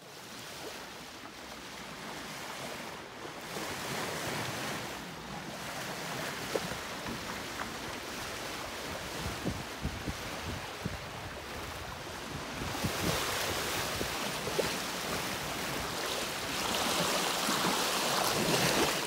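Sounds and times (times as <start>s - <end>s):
water rushing along hull: 0.0s - 19.0s
wind noise on microphone: 8.4s - 16.1s.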